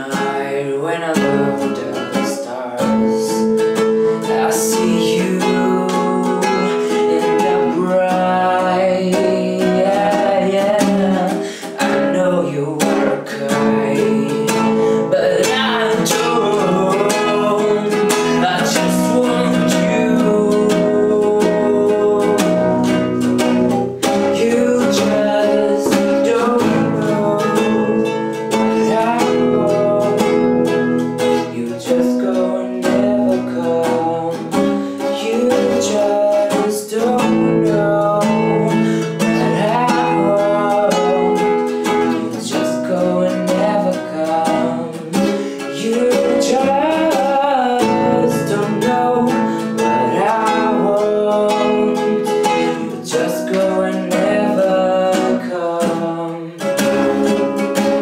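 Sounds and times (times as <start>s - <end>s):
acoustic guitar chords: 0.0s - 58.0s
person singing: 0.0s - 58.0s.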